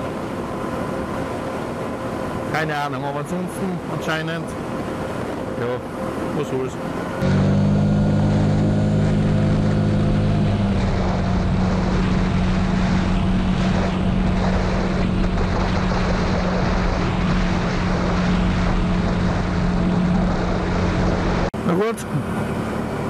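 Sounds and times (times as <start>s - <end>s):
engine droning: 0.0s - 23.0s
wind rushing: 7.0s - 21.5s.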